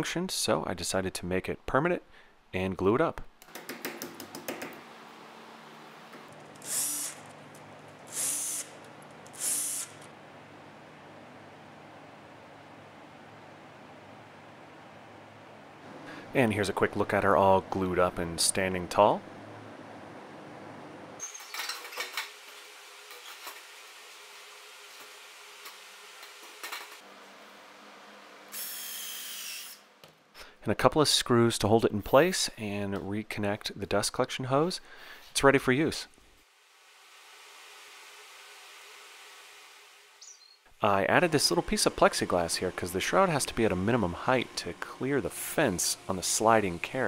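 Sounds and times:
drill driving screws into wood: 6.6s - 7.3s, 8.1s - 10.1s.

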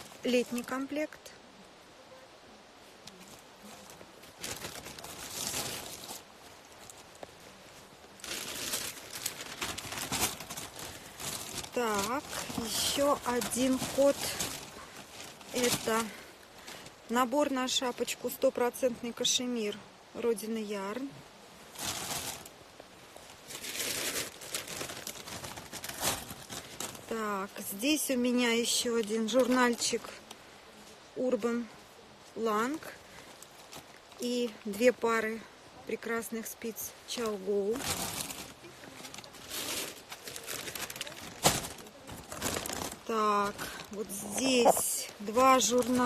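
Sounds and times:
plastic packaging crinkling: 3.7s - 7.2s, 8.1s - 16.9s, 21.7s - 22.6s, 23.2s - 27.3s, 37.6s - 46.0s.

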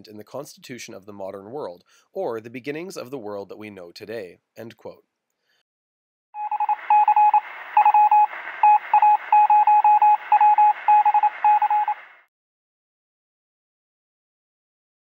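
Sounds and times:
morse code beeps: 6.4s - 12.2s
radio static hiss: 6.5s - 12.3s.

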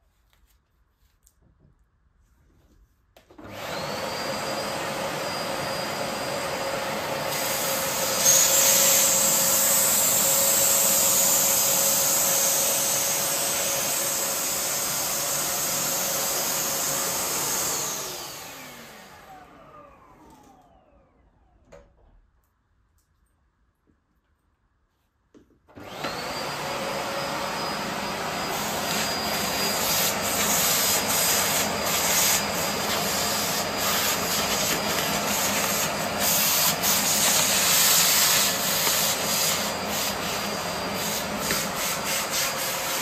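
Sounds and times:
vacuum cleaner running: 3.3s - 21.8s, 25.7s - 43.0s.

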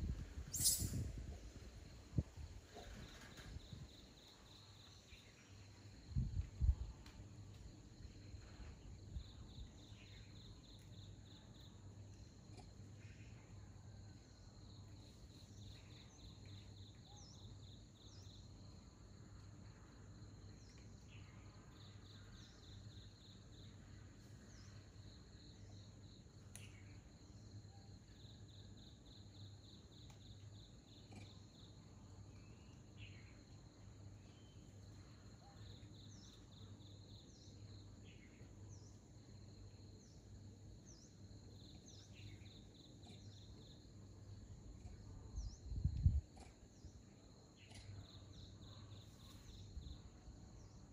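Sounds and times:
faint insect trilling: 0.1s - 2.0s, 24.5s - 40.2s
short high chirps: 0.5s - 1.1s.

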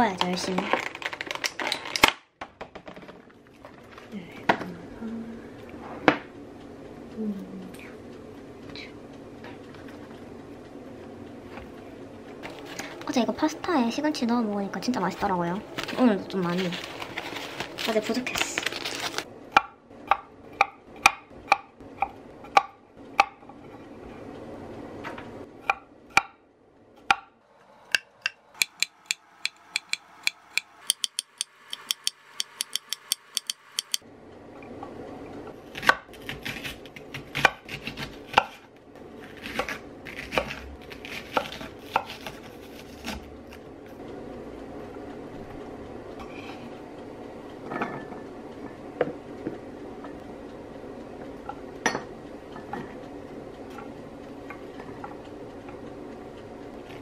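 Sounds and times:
knife chopping on wooden board: 35.7s - 38.6s, 39.3s - 43.2s.

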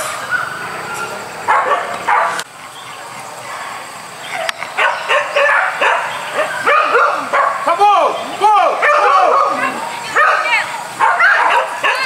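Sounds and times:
dog yelping and barking: 0.2s - 2.4s, 4.2s - 7.7s, 8.8s - 12.0s.

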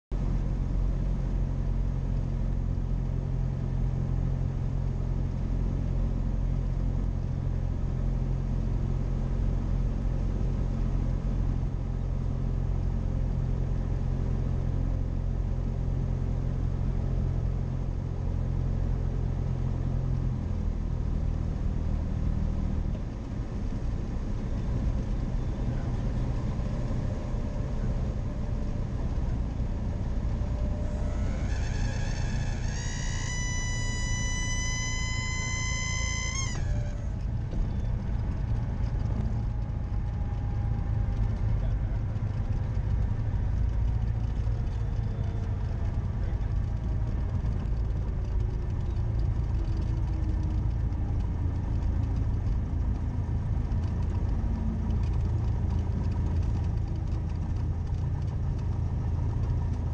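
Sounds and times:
propeller plane engine droning: 0.1s - 59.9s.

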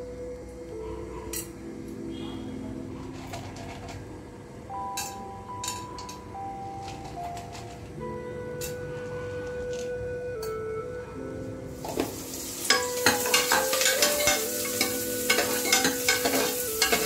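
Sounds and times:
soft instrumental music: 0.0s - 17.0s
utensil clinking on steel pot: 12.6s - 17.0s.

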